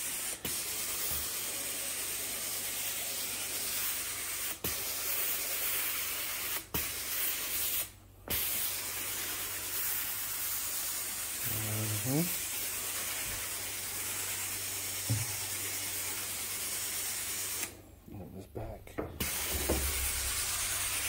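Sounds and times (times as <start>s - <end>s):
sprayer hissing: 7.6s - 17.8s, 19.2s - 21.0s.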